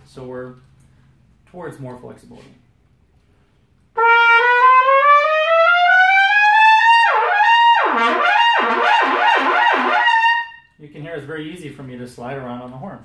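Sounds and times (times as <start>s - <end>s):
trumpet sliding between notes: 4.0s - 10.8s.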